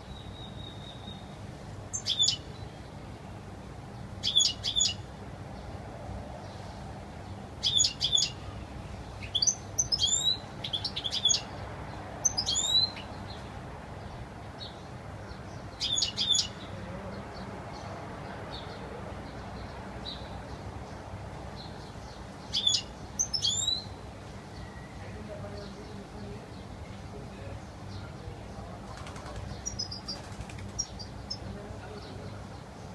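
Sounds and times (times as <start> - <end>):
bird twittering chirps: 1.9 - 2.9, 4.2 - 5.0, 7.6 - 8.4, 9.2 - 11.5, 12.2 - 13.4, 14.6 - 16.7, 21.6 - 24.0, 29.0 - 31.5.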